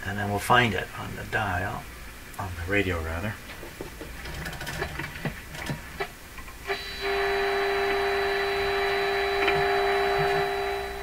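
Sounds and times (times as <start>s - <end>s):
radio crackles and clicks: 3.4s - 11.0s
steady modulation tone: 6.7s - 11.0s.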